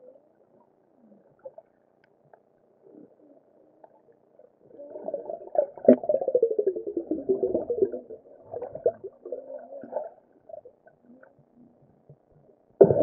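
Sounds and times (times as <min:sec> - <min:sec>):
underwater gurgling and bubbling: 0:04.6 - 0:12.2, 0:12.8 - 0:13.0.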